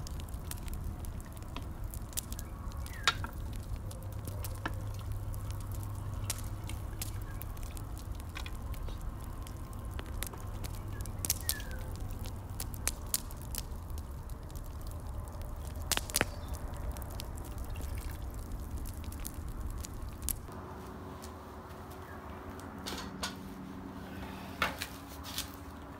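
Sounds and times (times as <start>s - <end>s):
liquid dripping: 0.0s - 20.5s
low steady rumble: 0.0s - 24.6s.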